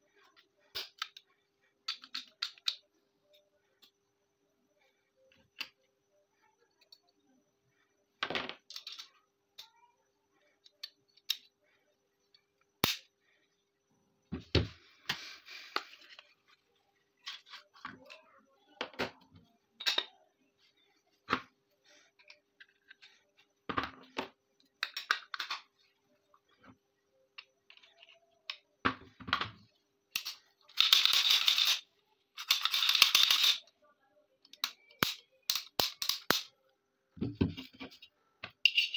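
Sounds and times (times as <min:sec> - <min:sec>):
metal pistol parts clicking: 0:01.9 - 0:02.8, 0:32.4 - 0:33.6, 0:34.5 - 0:36.5.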